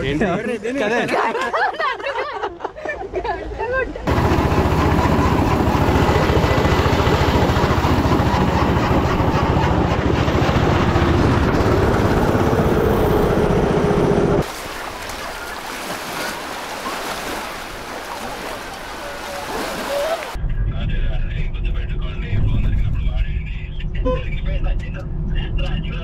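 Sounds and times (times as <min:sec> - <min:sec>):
go-kart engine running hard: 0:04.1 - 0:14.4.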